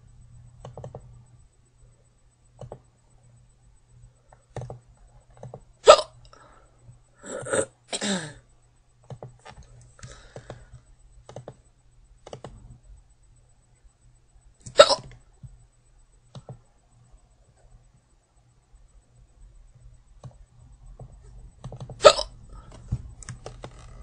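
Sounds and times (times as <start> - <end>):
girl hiccuping: 5.8 - 6.2, 14.8 - 15.1, 22.0 - 22.3
faint clicks: 9.0 - 12.7, 16.2 - 16.7.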